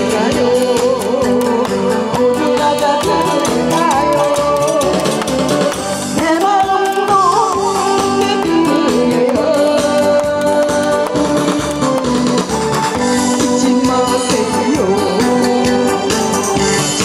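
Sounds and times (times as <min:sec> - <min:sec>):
woman singing into microphone: 0:00.0 - 0:12.2, 0:13.2 - 0:16.4
backing track with steady beat: 0:00.0 - 0:17.0.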